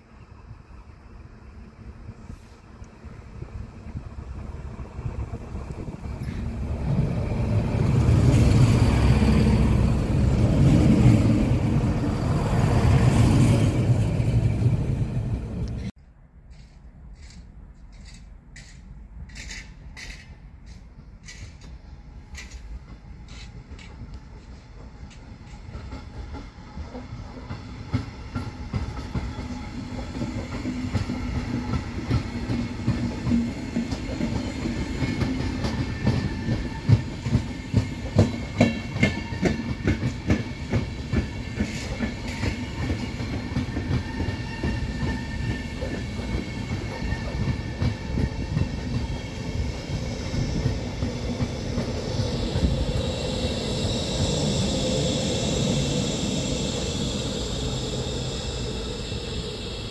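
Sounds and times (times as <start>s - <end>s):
train wheels clacking: 16.5s - 59.9s.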